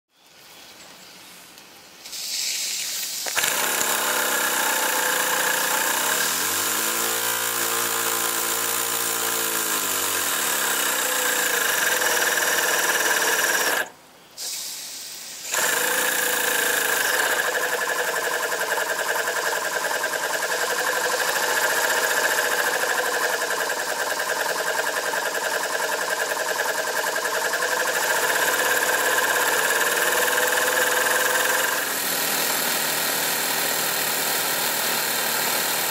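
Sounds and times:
steam hissing: 0:02.0 - 0:03.4, 0:13.2 - 0:18.3
model steam engine whirring: 0:03.3 - 0:13.9, 0:15.5 - 0:35.9.

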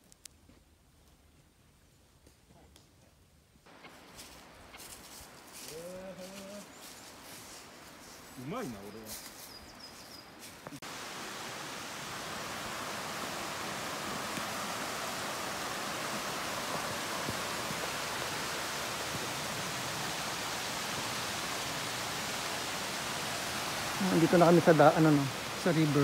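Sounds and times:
mountain stream rushing: 0:03.7 - 0:09.0, 0:10.4 - 0:26.0
waterfall spilling down concrete: 0:10.8 - 0:26.0.

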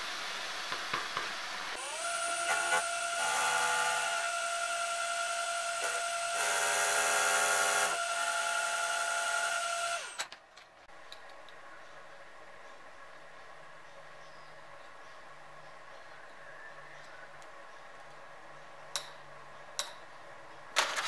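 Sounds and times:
milling machine cutting metal: 0:01.8 - 0:10.2.

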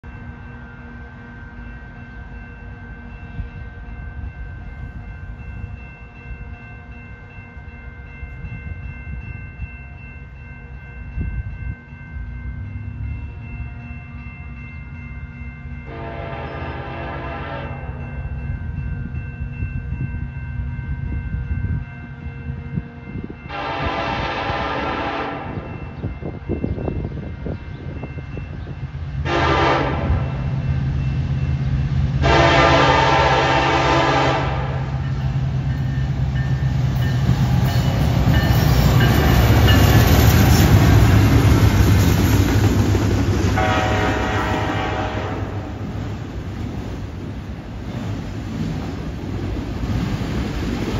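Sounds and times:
low train rumble: 0:00.0 - 0:50.9
locomotive horn chord: 0:15.9 - 0:18.0, 0:23.5 - 0:25.8, 0:29.2 - 0:30.6, 0:32.2 - 0:35.0, 0:43.6 - 0:45.9.

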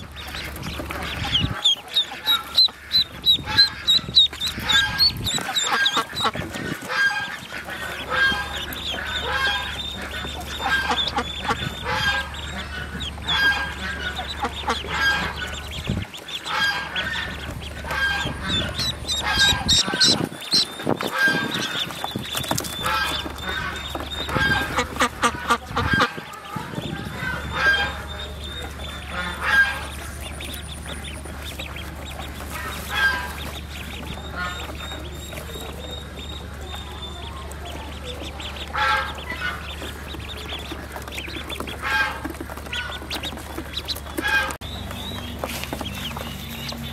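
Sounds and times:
ducks honking: 0:00.0 - 0:46.9.

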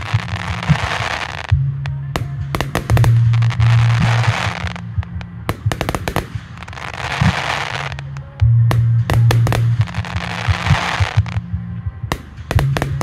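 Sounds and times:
fireworks bangs: 0:00.0 - 0:01.6, 0:02.2 - 0:08.1, 0:08.7 - 0:11.4, 0:12.1 - 0:13.0
fireworks crackling hiss: 0:00.0 - 0:01.6, 0:02.2 - 0:04.9, 0:05.5 - 0:08.2, 0:09.1 - 0:11.4.

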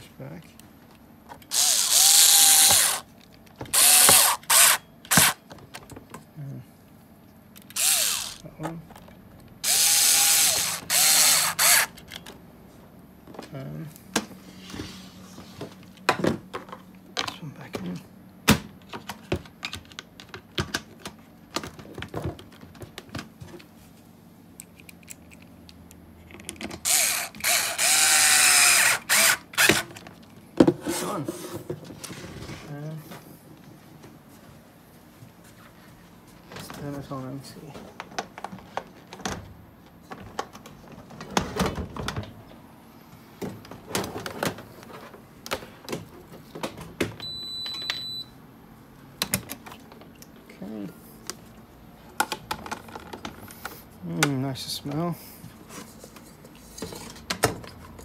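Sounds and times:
cordless screwdriver whirring: 0:01.4 - 0:03.1, 0:03.7 - 0:05.4, 0:07.6 - 0:08.4, 0:09.6 - 0:12.0, 0:26.8 - 0:29.9.

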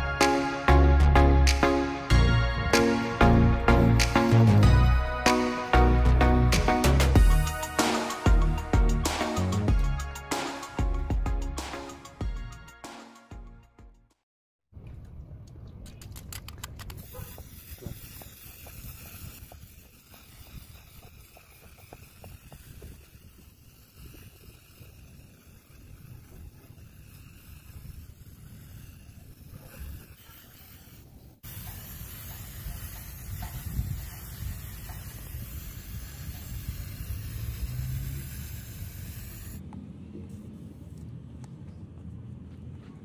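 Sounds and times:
aerosol spray hiss: 0:02.8 - 0:12.2, 0:17.0 - 0:39.6
wind on microphone: 0:14.8 - 0:40.9.

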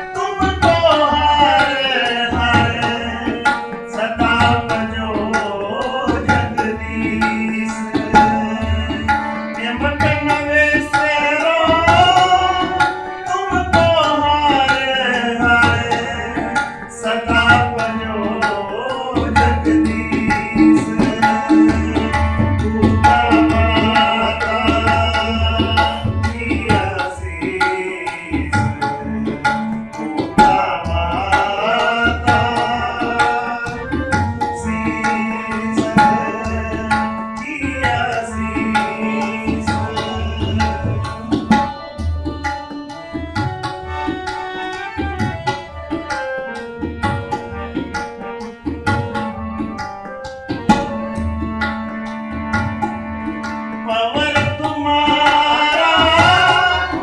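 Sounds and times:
person singing: 0:00.0 - 0:42.8, 0:53.1 - 0:57.0
harmonium chords: 0:00.0 - 0:57.0
tabla rhythm: 0:00.0 - 0:57.0.

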